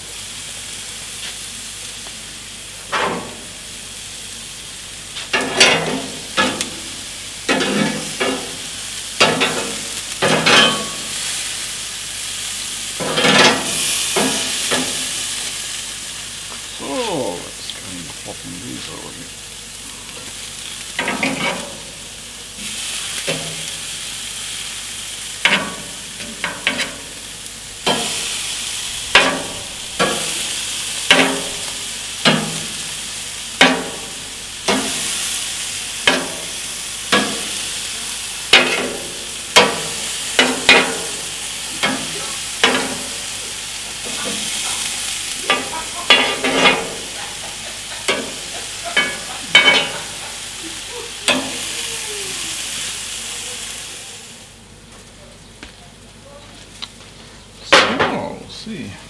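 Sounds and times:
meat sizzling: 0:00.0 - 0:55.2
metal tongs clinking: 0:45.5 - 0:50.3.

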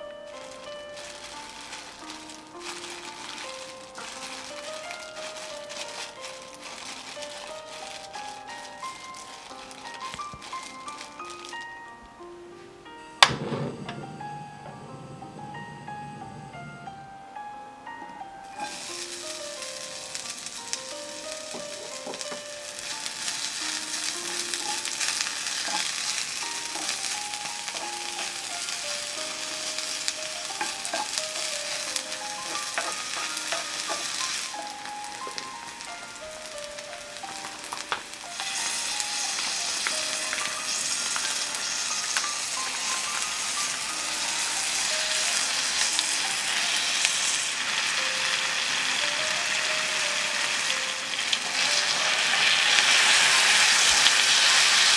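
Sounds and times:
food sizzling in oil: 0:00.0 - 0:11.8, 0:18.5 - 0:54.9
simple background melody: 0:00.0 - 0:54.9
wooden spatula stirring: 0:00.3 - 0:11.6, 0:18.6 - 0:36.4.

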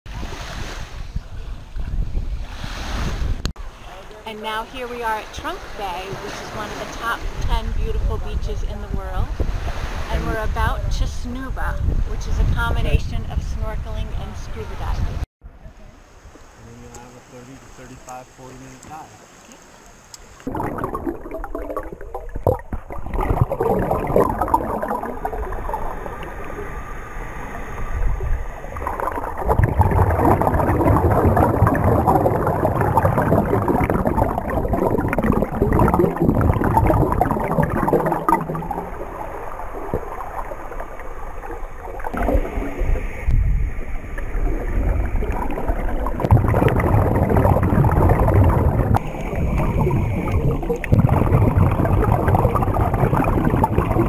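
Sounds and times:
rushing underwater water: 0:00.1 - 0:03.8, 0:20.2 - 0:54.0
air bubbles from regulators: 0:20.4 - 0:26.6, 0:28.6 - 0:43.4, 0:44.1 - 0:54.0.

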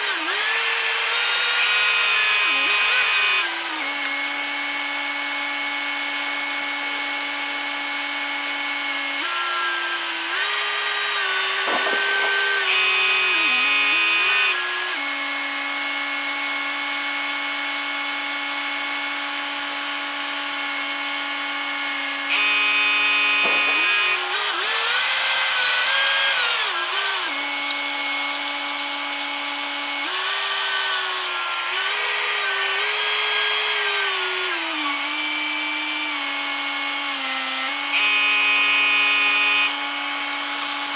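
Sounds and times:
crane machine whine: 0:01.4 - 0:04.6, 0:10.7 - 0:14.7, 0:22.1 - 0:27.0.

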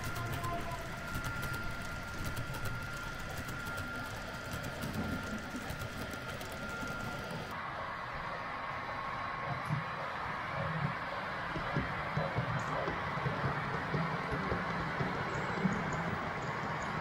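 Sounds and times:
model train motor whine: 0:00.0 - 0:07.6
wheel clicking and rumble: 0:00.0 - 0:07.6.

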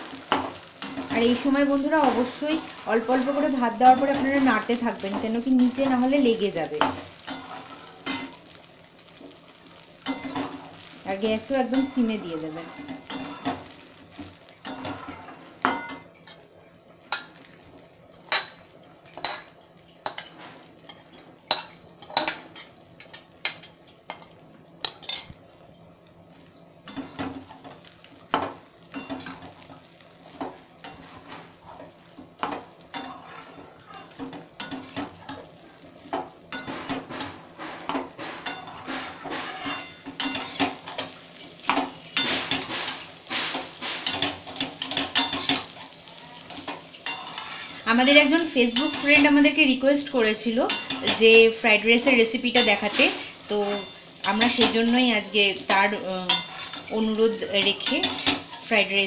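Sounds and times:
metal ladle scraping a pan: 0:30.9 - 0:35.5, 0:36.6 - 0:41.1, 0:41.7 - 0:49.4, 0:56.3 - 0:58.7.

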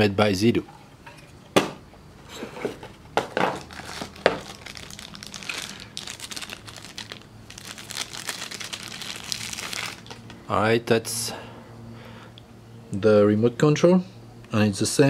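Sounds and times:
plastic bag crinkling: 0:03.5 - 0:10.4.

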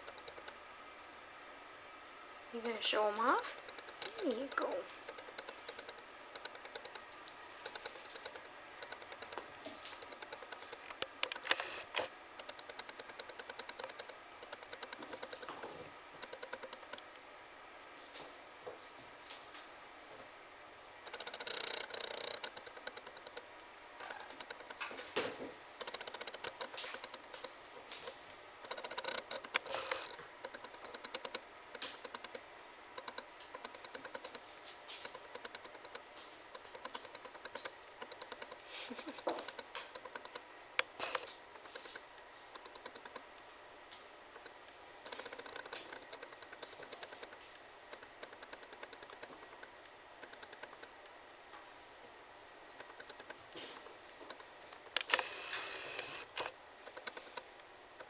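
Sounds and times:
fast light ticking: 0:00.0 - 0:00.6, 0:03.2 - 0:15.4, 0:16.2 - 0:17.2, 0:21.0 - 0:24.8, 0:25.8 - 0:27.5, 0:28.6 - 0:34.4, 0:35.0 - 0:43.4, 0:44.3 - 0:51.1
claws and toy clicking on tiles: 0:03.6 - 0:17.1, 0:21.0 - 0:24.9, 0:25.8 - 0:32.4, 0:33.0 - 0:43.3, 0:44.4 - 0:51.1, 0:52.8 - 0:53.4, 0:54.2 - 0:57.5.

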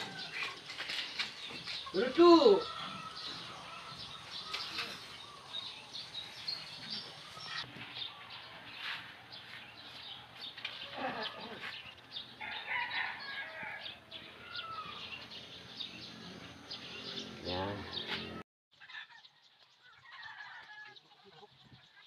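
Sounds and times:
rooster crowing: 0:00.0 - 0:00.5, 0:02.4 - 0:05.6, 0:12.4 - 0:15.3
small birds chirping: 0:00.0 - 0:22.0.

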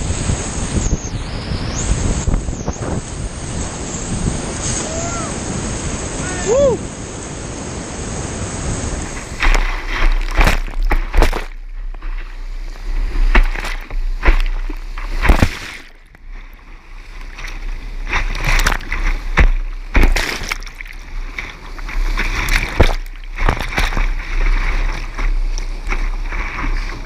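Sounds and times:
water splashing over boat: 0:00.0 - 0:27.0
whitewater rapids rushing: 0:02.8 - 0:11.4.

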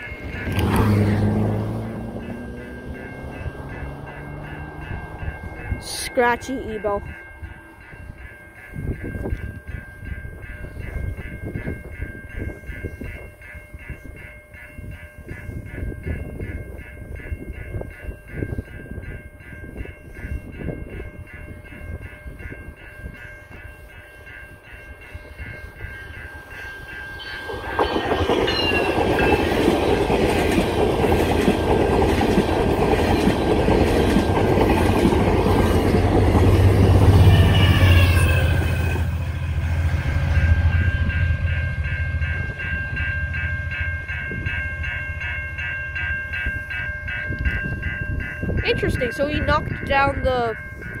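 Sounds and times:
diesel locomotive rumble: 0:00.0 - 0:14.2, 0:14.8 - 0:51.0
level crossing bell ringing: 0:00.0 - 0:30.5, 0:37.1 - 0:51.0
train wheels clattering: 0:25.2 - 0:39.0.

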